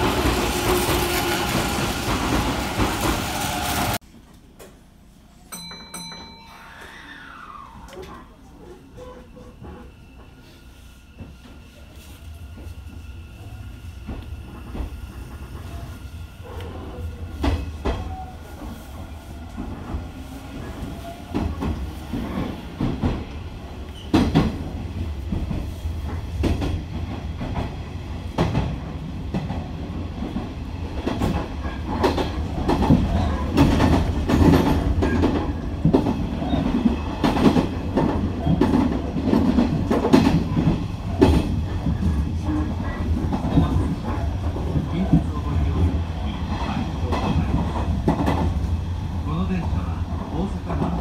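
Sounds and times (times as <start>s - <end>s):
train running rumble: 12.5s - 51.0s.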